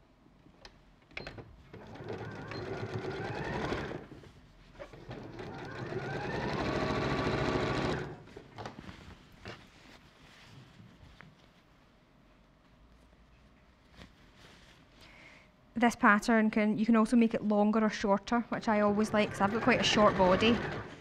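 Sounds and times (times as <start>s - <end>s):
sewing machine stitching: 1.2s - 4.2s, 4.8s - 8.4s, 18.6s - 21.0s.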